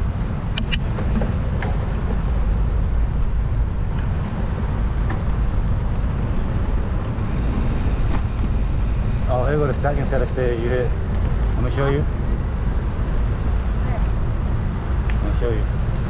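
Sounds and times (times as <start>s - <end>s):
wind on microphone: 0.0s - 16.0s
sharp clicks: 0.5s - 0.9s.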